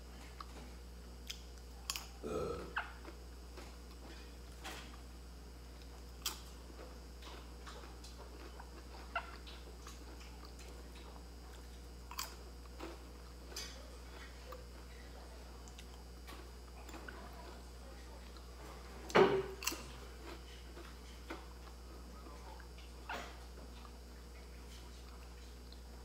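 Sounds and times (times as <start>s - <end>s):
crunching bites: 1.2s - 3.2s, 11.5s - 13.0s.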